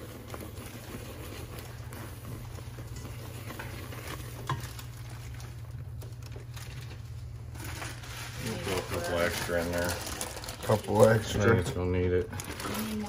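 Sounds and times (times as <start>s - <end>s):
spatula scraping sticky mixture in pot: 0.0s - 11.8s.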